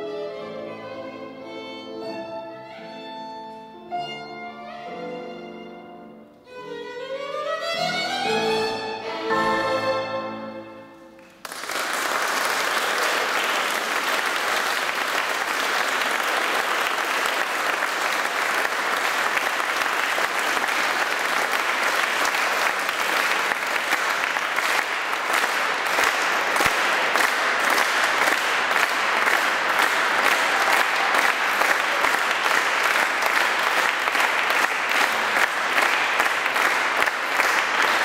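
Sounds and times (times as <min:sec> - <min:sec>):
audience applauding: 0:11.2 - 0:38.0.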